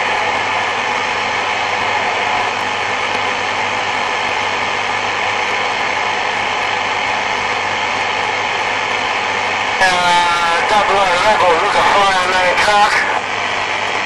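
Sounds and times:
faint hum: 0:00.0 - 0:14.0
radio static hiss: 0:07.8 - 0:13.5.

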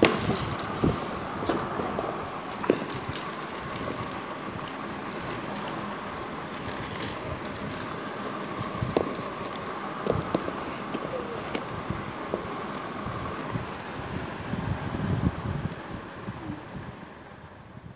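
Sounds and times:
soft paper rustling: 0:00.0 - 0:11.7
steady background hiss: 0:00.0 - 0:17.9.

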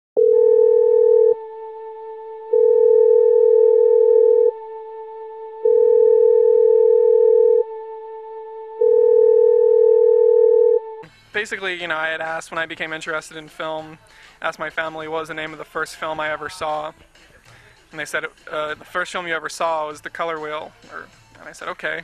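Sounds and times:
lower electronic tone: 0:00.2 - 0:11.1.

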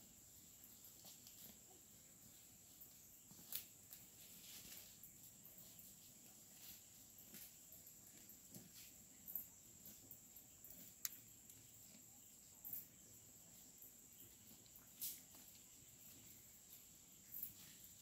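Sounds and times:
soft snaps and rustles: 0:03.3 - 0:04.9, 0:14.6 - 0:15.6.

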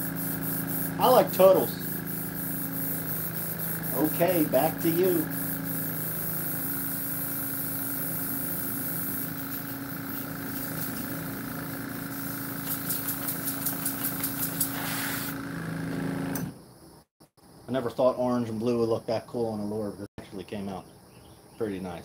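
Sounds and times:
airbrush spray burst: 0:00.0 - 0:15.5
air compressor humming: 0:00.0 - 0:16.7
short puffs of air: 0:12.1 - 0:15.4.

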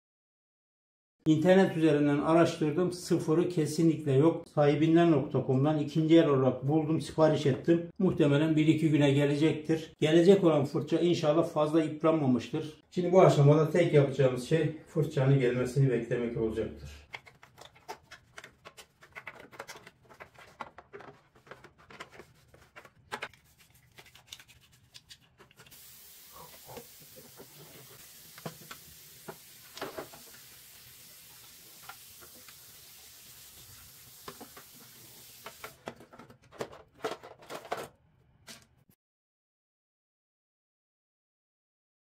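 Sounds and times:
knocks and scrapes of plastic: 0:17.1 - 0:23.4, 0:35.5 - 0:38.7
plastic scrubbed in water: 0:17.1 - 0:30.4
tap running: 0:26.8 - 0:32.7, 0:33.6 - 0:36.3.

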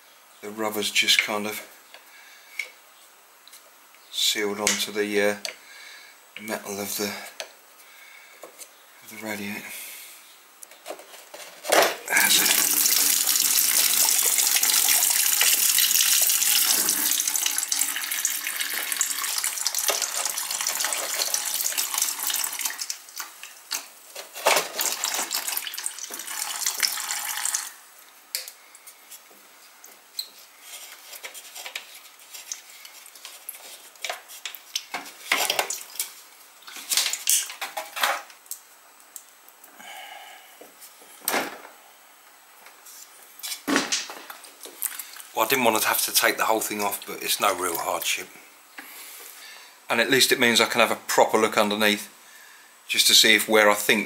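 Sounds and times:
liquid pouring into plastic bucket: 0:12.2 - 0:23.0, 0:24.8 - 0:27.7.

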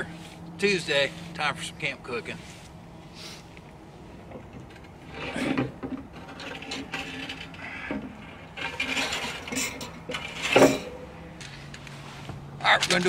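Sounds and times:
metal grill grate clanking: 0:04.2 - 0:11.7.

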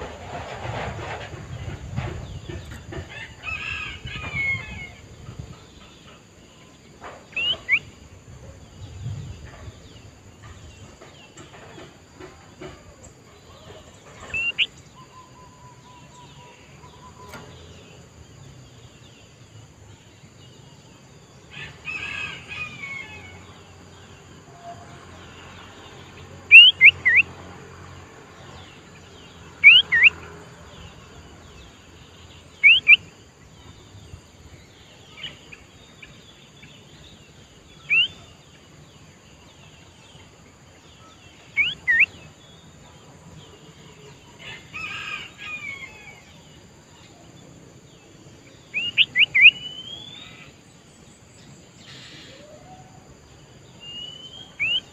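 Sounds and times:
bulbul calling: 0:07.3 - 0:08.0, 0:13.6 - 0:17.6, 0:26.4 - 0:27.4, 0:29.6 - 0:30.3, 0:32.5 - 0:33.2, 0:37.7 - 0:38.4, 0:41.4 - 0:42.3, 0:48.6 - 0:50.5, 0:53.8 - 0:54.9.

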